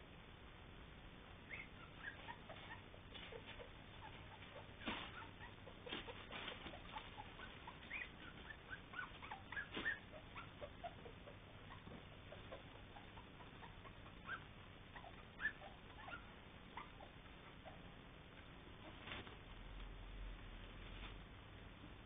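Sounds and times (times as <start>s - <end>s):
puppies squeaking and whimpering: 1.4s - 17.9s.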